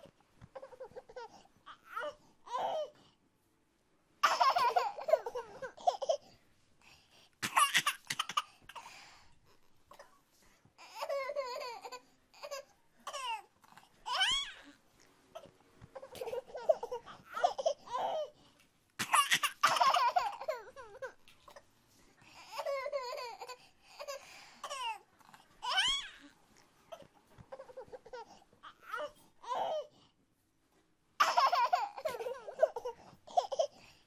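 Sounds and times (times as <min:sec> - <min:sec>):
baby laughing: 0:04.2 - 0:06.2, 0:07.4 - 0:08.9, 0:16.0 - 0:18.3, 0:19.0 - 0:21.2, 0:31.2 - 0:33.7.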